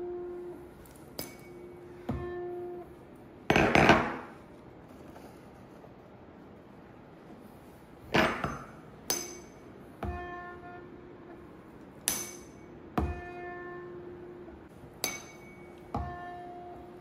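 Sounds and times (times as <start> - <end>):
tuning fork ringing tone: 0.0 - 3.1, 9.4 - 11.4, 12.3 - 17.0.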